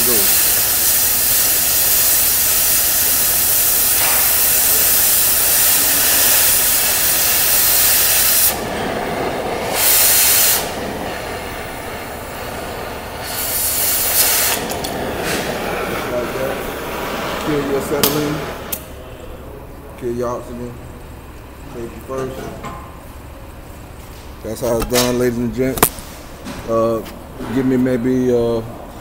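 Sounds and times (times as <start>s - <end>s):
cutting torch hissing: 0.0s - 19.3s.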